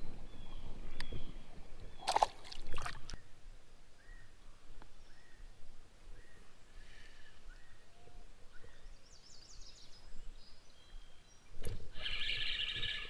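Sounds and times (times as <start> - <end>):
faint bird chirps: 5.0 - 13.0.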